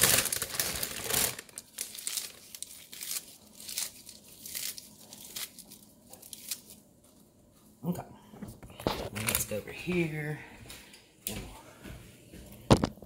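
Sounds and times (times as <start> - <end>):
spinach leaves tearing and rustling: 0.0 - 6.9.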